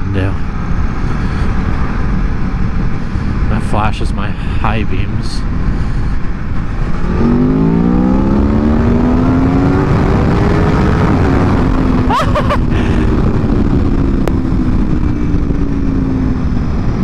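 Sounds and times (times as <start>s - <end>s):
heavy wind noise: 0.0s - 17.0s
motorcycle engine accelerating: 6.2s - 17.0s.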